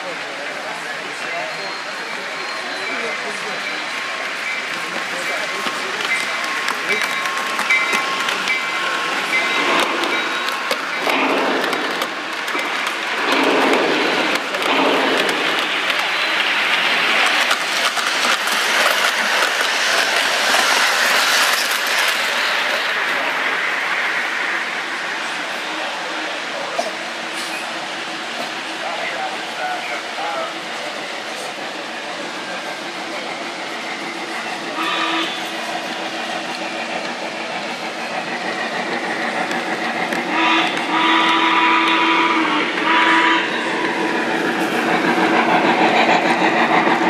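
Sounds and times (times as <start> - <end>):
model trains rumbling on rails: 0.0 - 47.0
train whistle blowing: 34.8 - 35.6, 40.3 - 43.6.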